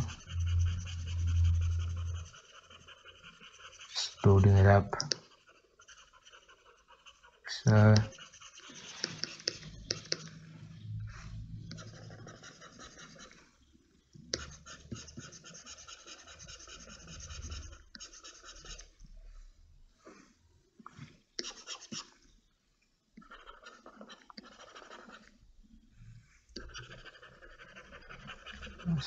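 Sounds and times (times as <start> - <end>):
mouse scraping over pad: 0.0 - 13.6, 14.3 - 20.4.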